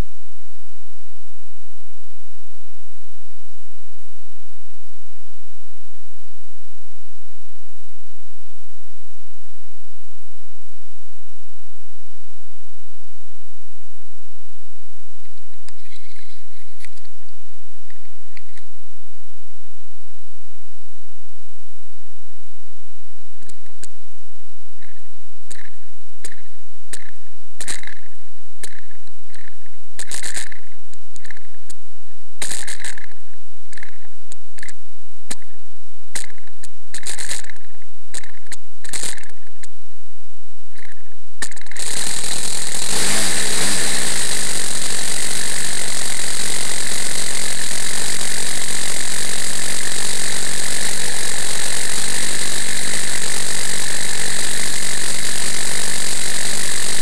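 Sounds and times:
model airplane engine buzzing: 0:41.4 - 0:57.0.

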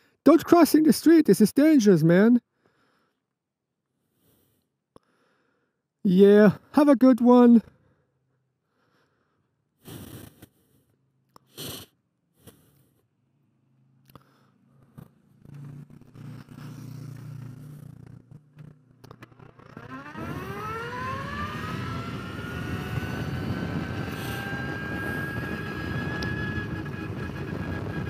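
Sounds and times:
wind and road noise: 0:14.6 - 0:19.4, 0:20.1 - 0:28.0
electric motorcycle motor whine: 0:15.4 - 0:28.0.

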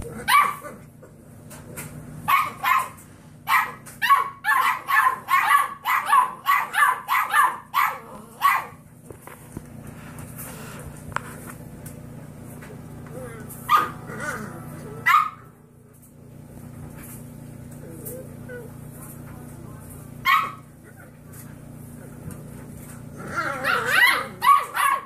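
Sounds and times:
puppies barking: 0:00.0 - 0:00.9, 0:02.2 - 0:08.8, 0:13.4 - 0:15.6, 0:20.2 - 0:21.2, 0:22.9 - 0:25.0.

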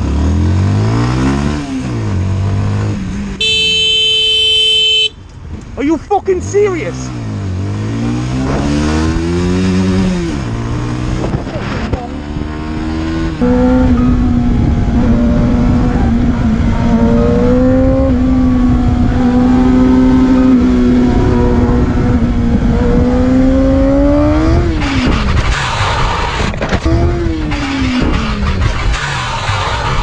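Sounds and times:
motorcycle engine revving: 0:00.0 - 0:05.2, 0:06.6 - 0:30.0
harsh rushing noise: 0:24.4 - 0:30.0.

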